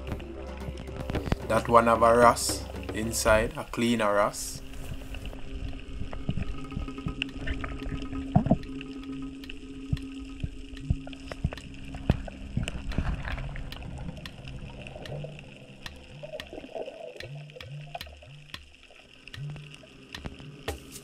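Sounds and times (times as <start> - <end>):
faint background music: 0.0 - 7.6
water sloshing and gurgling: 0.0 - 21.0
sharp clicks: 13.7 - 16.6, 17.2 - 20.4.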